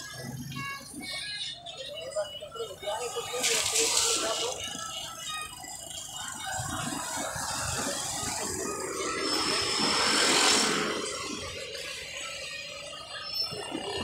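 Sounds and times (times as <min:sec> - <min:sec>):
vehicle passing by: 0:06.8 - 0:11.9.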